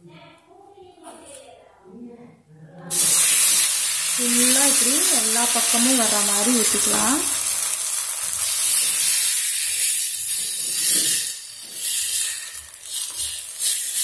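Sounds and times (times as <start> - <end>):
batter sizzling in a hot pan: 2.9 - 14.0.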